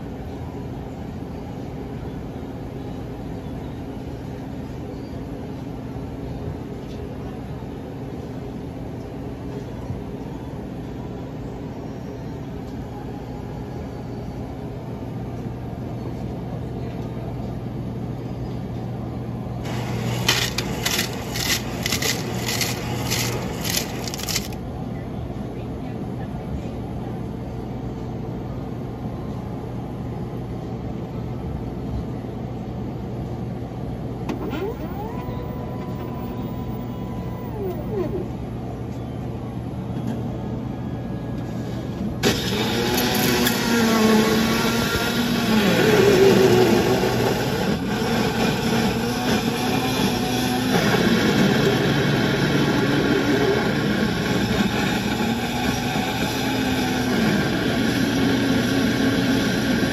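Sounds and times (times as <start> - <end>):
vending machine humming: 17.6 - 25.4, 32.5 - 59.9
ice clattering into cup: 19.7 - 24.6.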